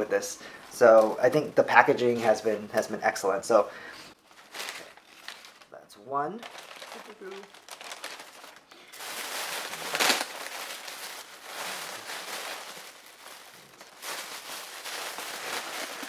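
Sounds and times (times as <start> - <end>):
packing material rustling: 4.2 - 16.0.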